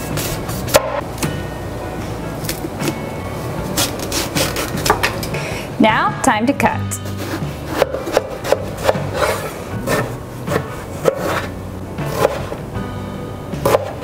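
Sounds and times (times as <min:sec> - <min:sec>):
knife chopping on wooden board: 0:00.2 - 0:01.0, 0:07.1 - 0:12.6, 0:13.6 - 0:14.0.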